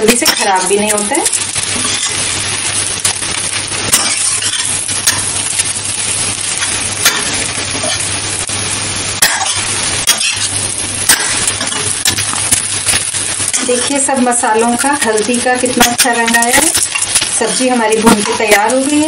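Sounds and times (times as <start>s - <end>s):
frying hiss: 0.0s - 19.0s.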